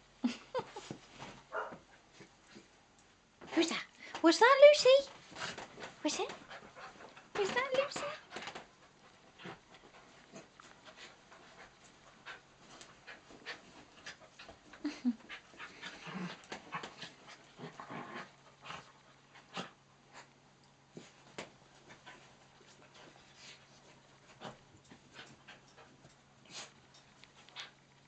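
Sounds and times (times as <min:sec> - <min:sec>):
scuffling clicks and rustles: 0:03.4 - 0:17.4
dogs panting: 0:04.5 - 0:27.9.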